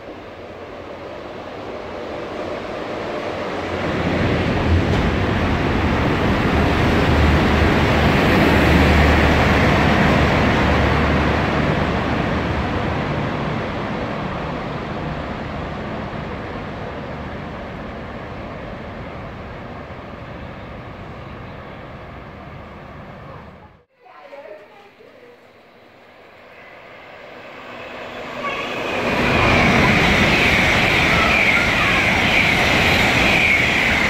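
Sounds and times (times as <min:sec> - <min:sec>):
wheels rumbling on rails: 0:00.0 - 0:23.9, 0:26.4 - 0:34.0.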